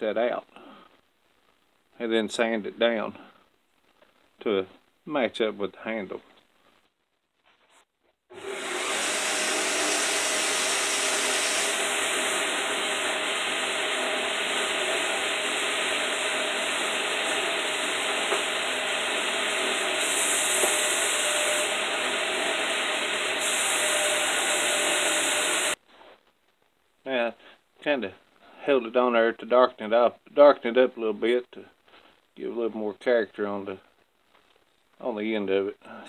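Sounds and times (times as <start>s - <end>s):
belt grinder sanding wood: 8.3s - 25.8s.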